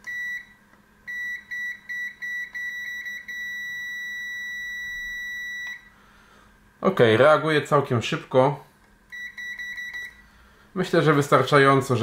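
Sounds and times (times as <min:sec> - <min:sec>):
continuity buzzer beeping: 0:00.0 - 0:06.0, 0:09.1 - 0:10.3.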